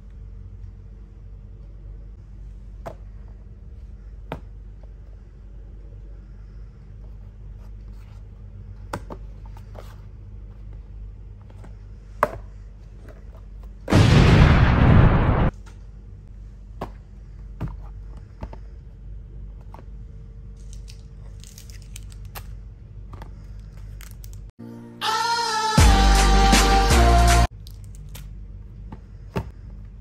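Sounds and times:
low hum: 13.6 - 24.8
explosion sound effect: 13.9 - 15.5.

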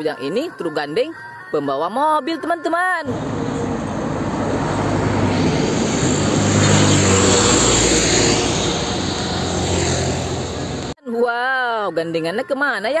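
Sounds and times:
tyres on road: 3.0 - 11.0
truck diesel engine drone: 3.1 - 11.0.

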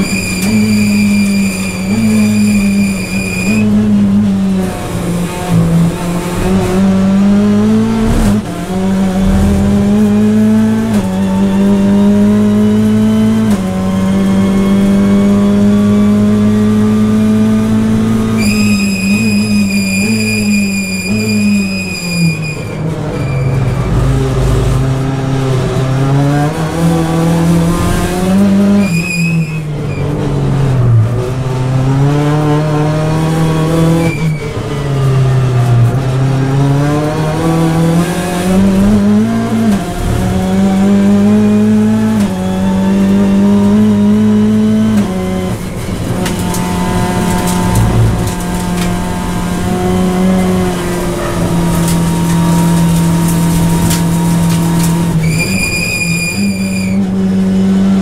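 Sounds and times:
race car engine revving: 0.0 - 20.2, 22.7 - 28.8, 29.8 - 55.6, 56.3 - 58.0
tyres squealing: 55.2 - 57.0.

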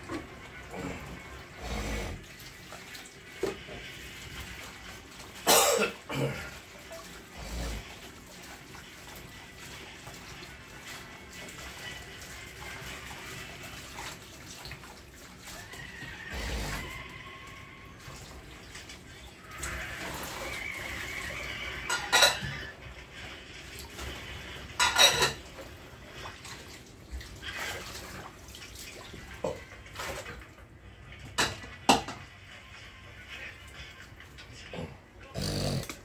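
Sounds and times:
cutlery clinking on dishes: 21.8 - 22.7, 24.7 - 25.5.

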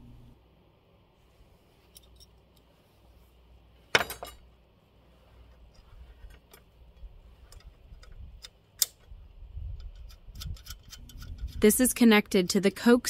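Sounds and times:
metal hardware clinking: 1.9 - 2.7, 3.9 - 4.5, 5.7 - 11.7.

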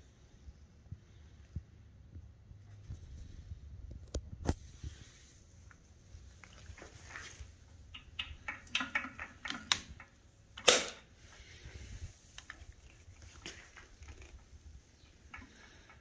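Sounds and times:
machine gun parts clicking: 7.9 - 11.1.

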